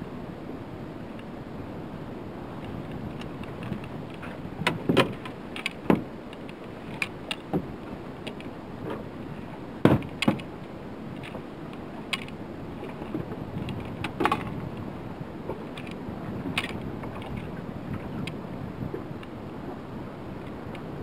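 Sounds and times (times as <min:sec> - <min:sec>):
gear knocking in boat: 0:02.6 - 0:10.6, 0:11.2 - 0:14.8.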